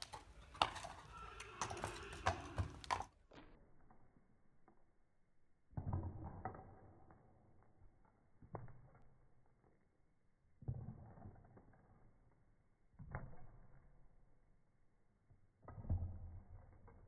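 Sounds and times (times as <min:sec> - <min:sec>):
hooves clip-clopping on concrete: 0:00.0 - 0:04.9, 0:15.6 - 0:17.0.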